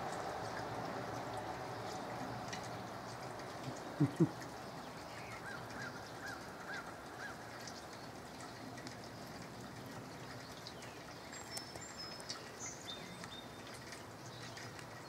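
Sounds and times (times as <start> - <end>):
light rain hissing: 0.0 - 15.0
bird calling: 3.7 - 7.5.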